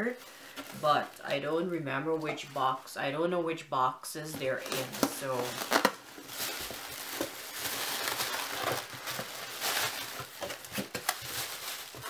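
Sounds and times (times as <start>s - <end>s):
cardboard box rustling and crinkling: 4.3s - 12.0s.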